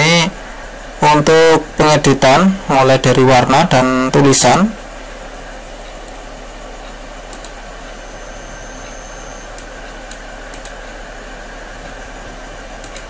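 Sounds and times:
background hiss: 0.0s - 13.0s
low mains hum: 0.0s - 13.0s
computer mouse clicks: 7.3s - 7.6s, 9.6s - 10.8s, 12.8s - 13.0s.

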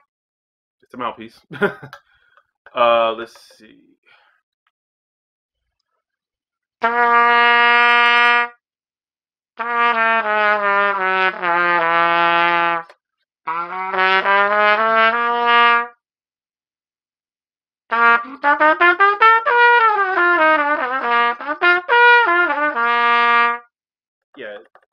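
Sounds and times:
trumpet playing: 6.8s - 8.6s, 9.6s - 12.9s, 13.5s - 16.0s, 17.9s - 23.7s.

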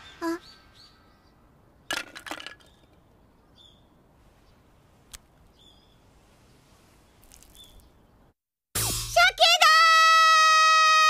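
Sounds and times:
bird chirp: 0.0s - 2.0s, 2.6s - 4.7s, 5.5s - 8.3s
small object clattering: 1.9s - 3.1s, 7.2s - 7.8s.

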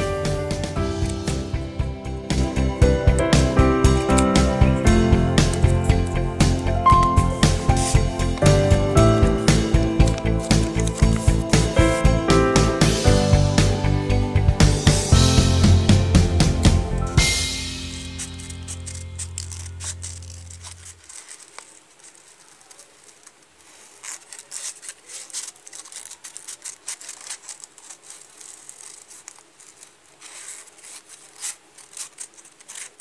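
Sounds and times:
background music: 0.0s - 20.9s
scissors snipping paper: 3.0s - 13.0s, 16.4s - 33.0s.

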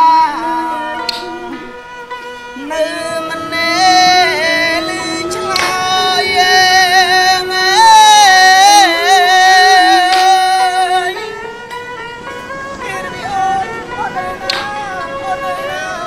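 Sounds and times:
accompanying music: 0.0s - 16.0s
person singing long wavering notes: 0.0s - 16.0s.

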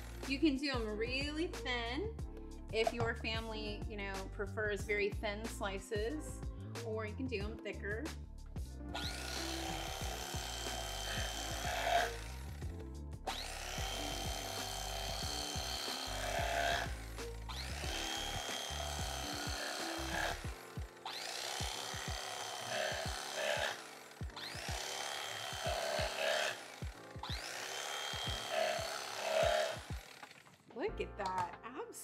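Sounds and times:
electric carving knife whining: 0.0s - 0.3s, 8.9s - 30.6s.

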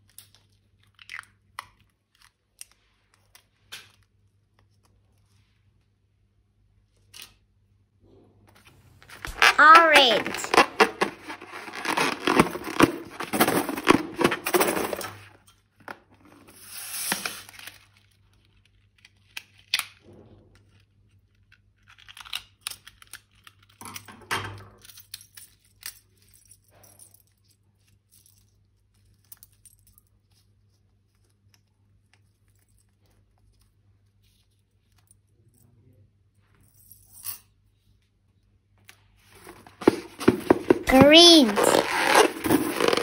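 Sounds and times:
crinkling and tearing: 8.9s - 15.2s, 41.5s - 43.0s.

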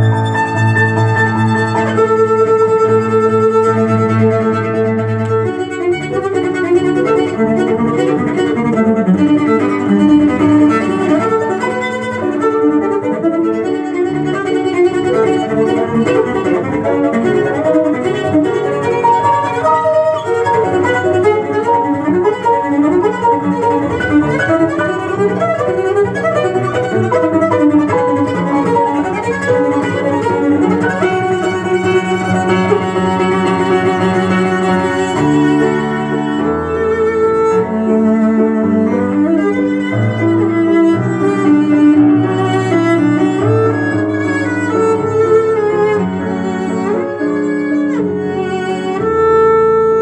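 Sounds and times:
cello chamber music: 0.0s - 50.0s.

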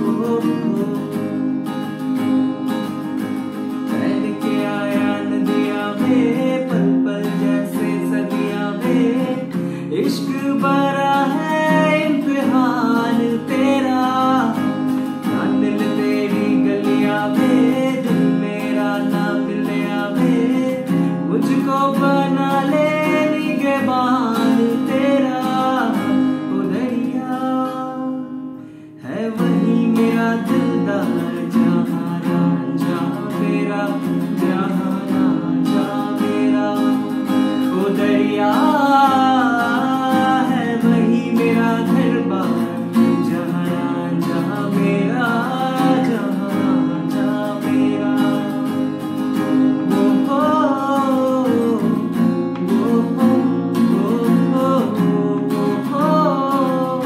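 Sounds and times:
acoustic guitar strumming: 0.0s - 57.0s
man singing: 0.0s - 57.0s.

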